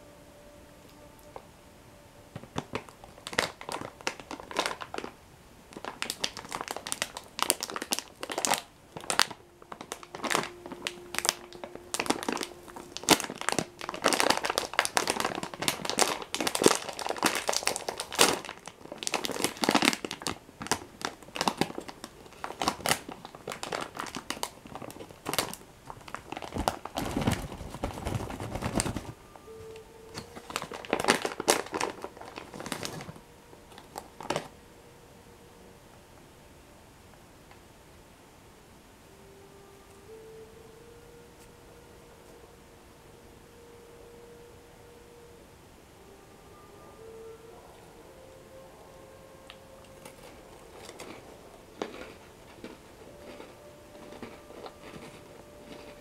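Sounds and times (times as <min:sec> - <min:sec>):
plastic packet crinkling: 0:02.4 - 0:34.5, 0:49.4 - 0:56.0.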